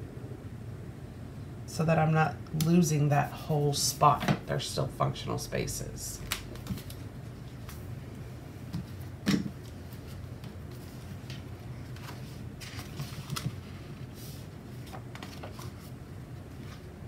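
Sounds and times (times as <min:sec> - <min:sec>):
pages flipping and rustling: 0:06.2 - 0:07.8, 0:08.7 - 0:17.0.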